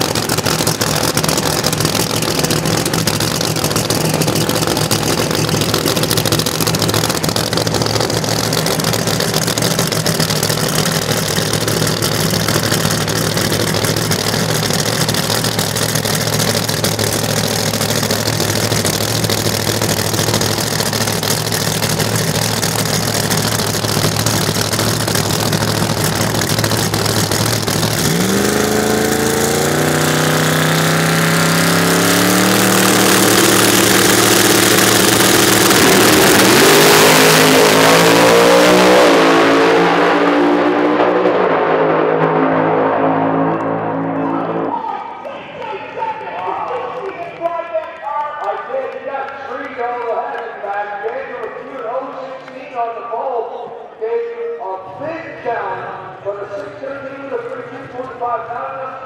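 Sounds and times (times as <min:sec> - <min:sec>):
racing car engines idling and revving: 0:00.0 - 0:54.2, 0:54.8 - 0:59.0.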